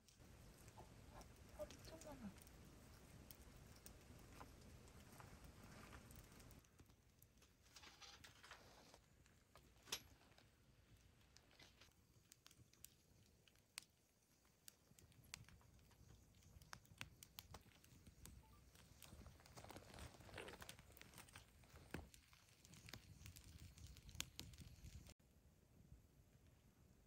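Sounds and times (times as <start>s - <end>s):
campfire crackling and popping: 0.0s - 25.2s
soft rustling: 0.1s - 12.1s.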